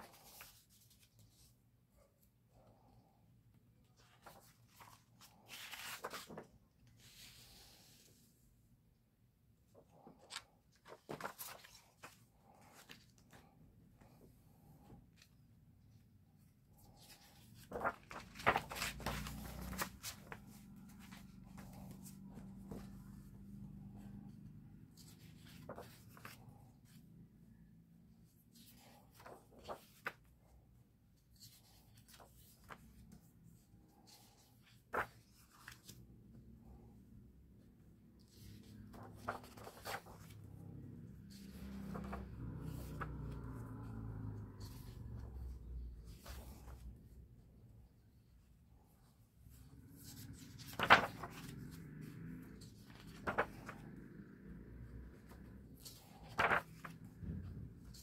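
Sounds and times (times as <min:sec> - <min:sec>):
book pages turning: 0:00.0 - 0:01.6, 0:03.9 - 0:08.2, 0:09.8 - 0:15.3, 0:16.8 - 0:27.0, 0:28.4 - 0:30.3, 0:31.3 - 0:33.2, 0:33.9 - 0:36.8, 0:38.2 - 0:47.1, 0:49.5 - 0:58.0
faint low hum: 0:16.5 - 0:28.5, 0:33.5 - 0:58.0
hand brushing page flat: 0:16.9 - 0:22.9, 0:53.1 - 0:53.6, 0:55.8 - 0:57.0
low steady hum: 0:52.6 - 0:58.0.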